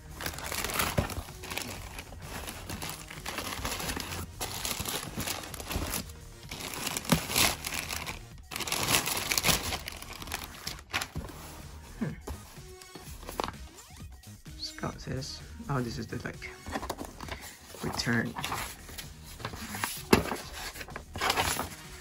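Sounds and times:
plastic bag crinkling: 0.1 - 11.2.

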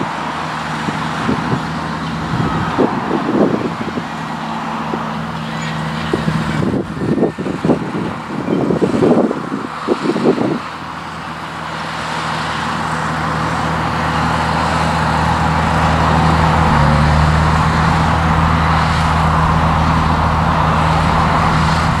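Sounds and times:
tractor diesel engine running: 0.0 - 22.0
rough burst of noise: 15.8 - 22.0.

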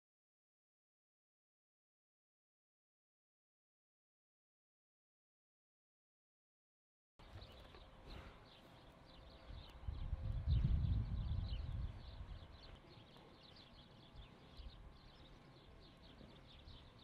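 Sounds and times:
small birds chirping: 7.2 - 17.0.

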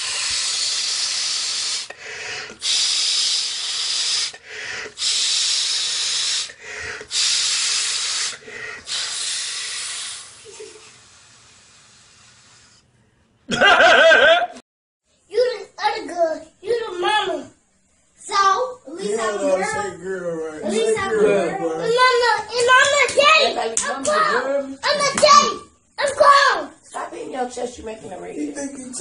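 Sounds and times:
forceful nasal breaths: 0.0 - 13.1
loud laughter: 13.5 - 14.6.

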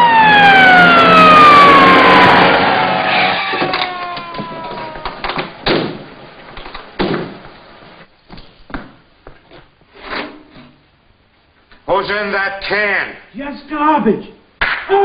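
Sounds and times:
police siren winding down: 0.0 - 5.5
car doors slamming: 4.4 - 6.1.

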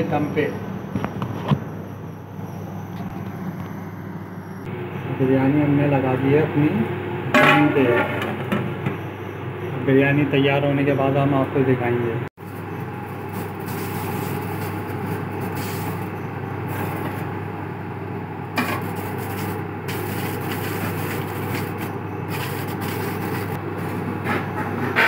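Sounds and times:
kitchen background hum: 0.0 - 25.0.

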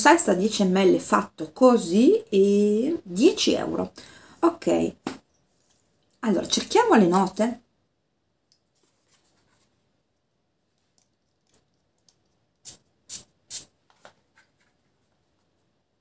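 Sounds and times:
perfume atomiser spraying: 12.6 - 13.8.

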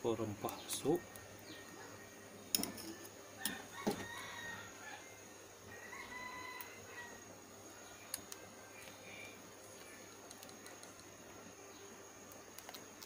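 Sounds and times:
distant rooster crowing: 3.4 - 7.4.

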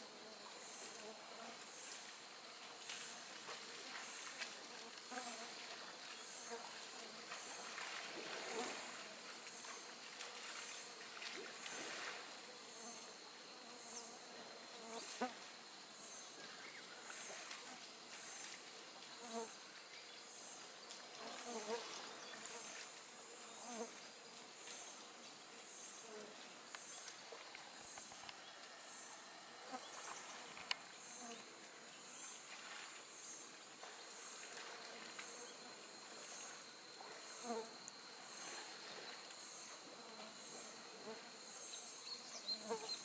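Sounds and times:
insects calling: 5.1 - 43.0
steady hiss: 8.5 - 34.5.

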